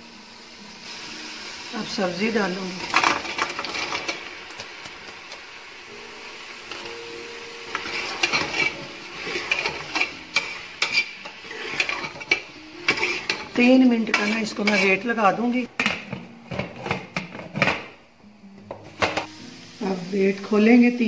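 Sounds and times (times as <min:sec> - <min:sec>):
vegetables sizzling in hot oil: 0:00.0 - 0:18.2, 0:18.9 - 0:21.0
ladle scraping and clinking pot: 0:02.9 - 0:04.3, 0:07.7 - 0:15.1, 0:15.8 - 0:17.8.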